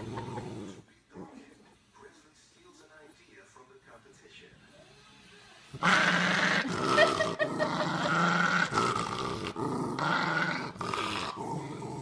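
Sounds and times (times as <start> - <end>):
dog growling: 0.0 - 1.4, 5.7 - 12.0.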